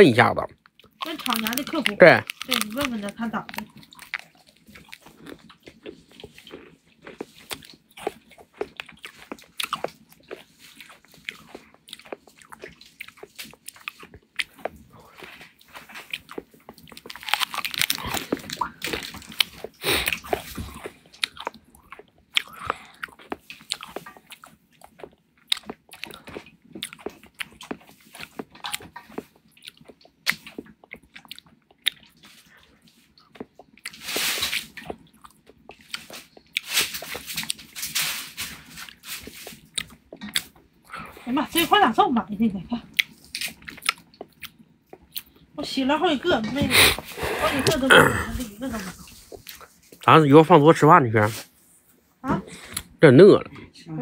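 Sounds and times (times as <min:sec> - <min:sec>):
crunching and clicking: 0:00.5 - 0:40.7.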